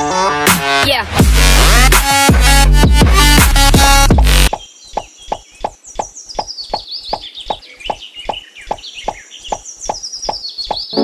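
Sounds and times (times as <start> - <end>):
birds chirping: 4.3 - 11.0.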